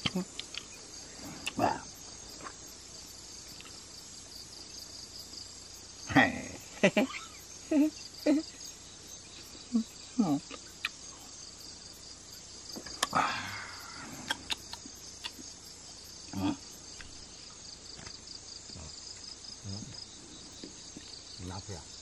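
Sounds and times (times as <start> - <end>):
crickets chirping: 0.0 - 22.0
short vocal sounds: 13.0 - 14.8, 16.3 - 16.6.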